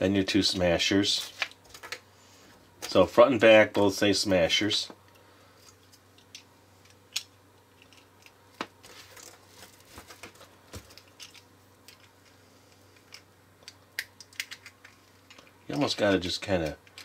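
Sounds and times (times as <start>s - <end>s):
plastic pieces clicking together: 13.0s - 15.5s.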